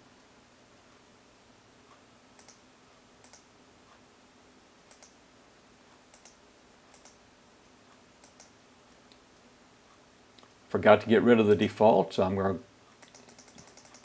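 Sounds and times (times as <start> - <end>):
faint steady hum: 0.0 - 14.0
faint sharp clicks: 2.4 - 2.6, 3.2 - 3.5, 4.9 - 5.2, 6.1 - 7.2, 8.2 - 9.2.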